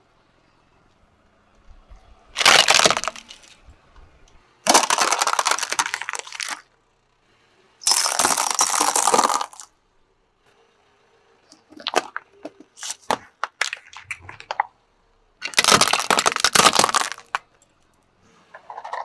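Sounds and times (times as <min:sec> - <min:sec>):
plastic toys cracking and crunching: 0:02.4 - 0:03.7, 0:04.6 - 0:06.7, 0:07.8 - 0:09.7, 0:11.5 - 0:14.8, 0:15.4 - 0:17.9, 0:18.6 - 0:19.0.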